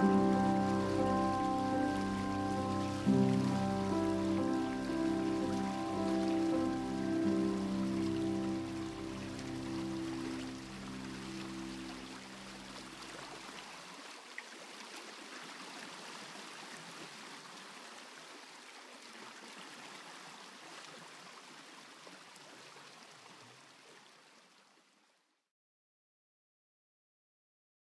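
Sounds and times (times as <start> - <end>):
musical drone: 0.0 - 13.0
flowing water: 0.0 - 25.3.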